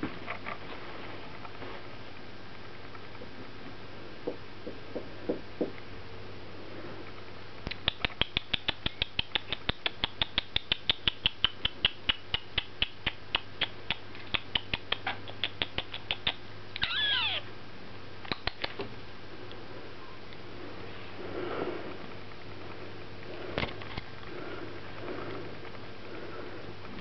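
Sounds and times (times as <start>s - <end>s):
cockatiel chirping: 16.2s - 17.4s
cockatiel squawk: 16.8s - 17.5s.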